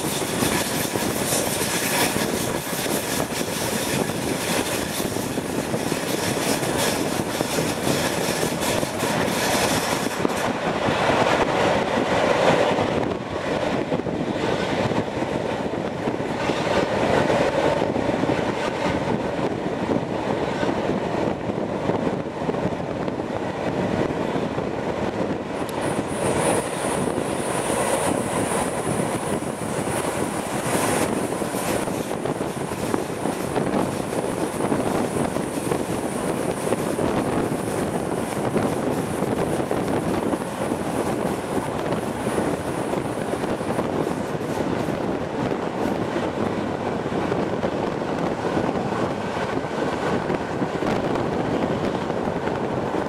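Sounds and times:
train wheels rushing on track: 0.0s - 53.0s
wind: 0.0s - 53.0s.

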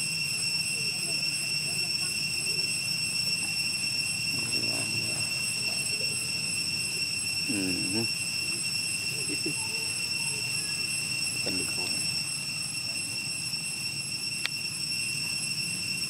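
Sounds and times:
high-pitched insect chorus: 0.0s - 16.0s
voice-like calls: 4.2s - 13.2s.

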